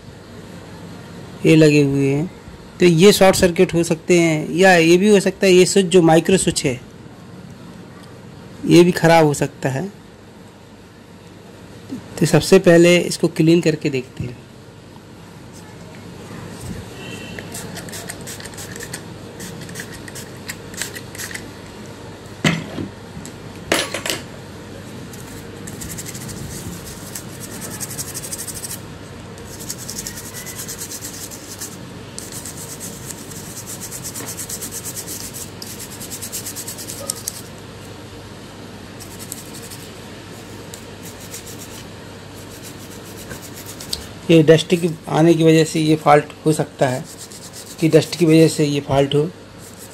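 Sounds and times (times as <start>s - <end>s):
scratchy rubbing strokes: 17.4s - 21.4s, 25.2s - 28.8s, 29.4s - 37.5s, 39.0s - 44.2s, 47.0s - 48.3s, 49.6s - 49.9s.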